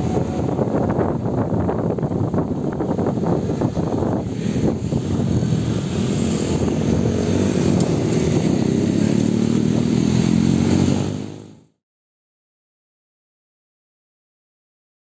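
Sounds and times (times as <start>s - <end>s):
motorbikes riding past: 0.0s - 11.7s.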